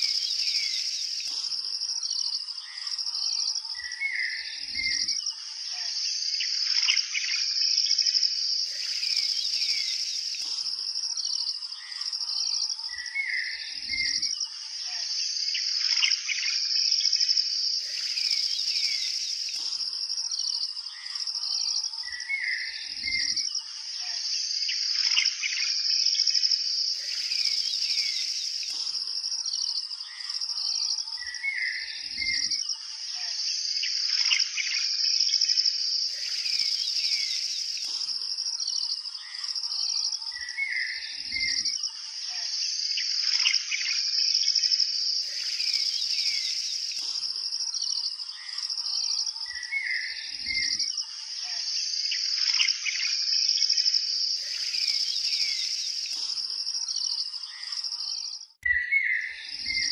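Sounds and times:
birds chirping: 0.0s - 5.1s, 8.6s - 14.2s, 26.8s - 32.5s, 36.0s - 41.6s, 45.1s - 59.9s
high insect trill: 0.0s - 58.6s.

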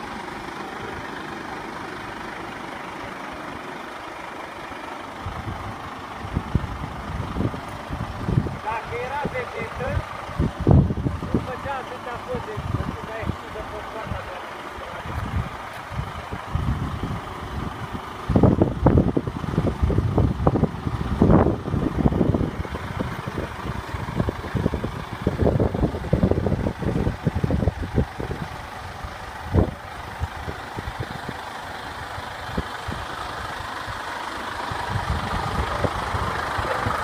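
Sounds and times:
truck diesel engine running slowly: 0.0s - 37.0s
low rumbling thumps: 5.2s - 13.5s.

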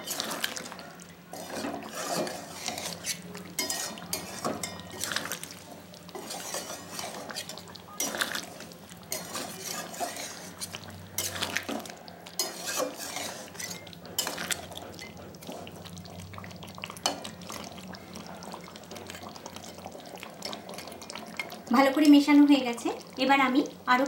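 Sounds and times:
metal spatula scraping pan: 0.0s - 0.6s, 1.3s - 11.7s, 12.4s - 15.4s
thick gravy stirring: 0.0s - 21.7s.

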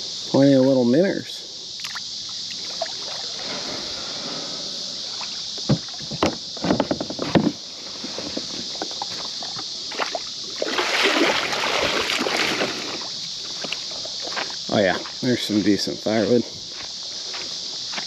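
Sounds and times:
steady high hiss: 0.0s - 18.0s
paddle knocking on plastic hull: 5.7s - 7.6s
paddle splashing: 8.0s - 13.2s
rush of water: 9.9s - 13.1s.

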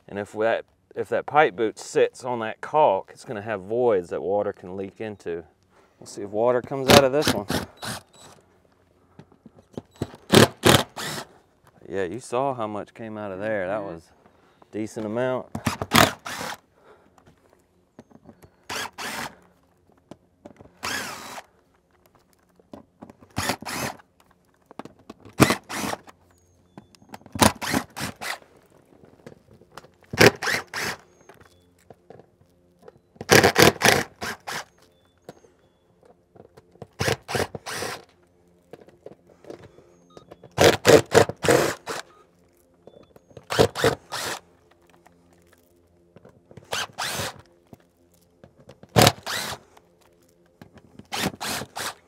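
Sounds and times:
impact driver bursts: 6.9s - 8.4s, 9.9s - 11.3s, 15.6s - 16.6s, 18.7s - 19.4s, 20.8s - 21.5s, 23.3s - 24.0s, 25.4s - 26.1s, 27.3s - 28.4s, 30.1s - 31.0s, 33.3s - 34.7s, 37.0s - 38.1s, 40.5s - 42.1s, 43.4s - 44.4s, 46.7s - 47.4s, 49.0s - 49.6s, 51.0s - 52.0s.

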